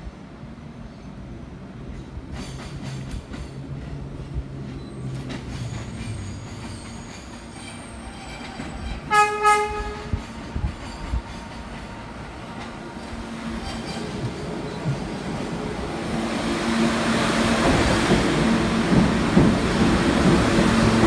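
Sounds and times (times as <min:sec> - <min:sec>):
subway train rumbling: 0:00.0 - 0:21.0
train horn toots: 0:09.0 - 0:10.2.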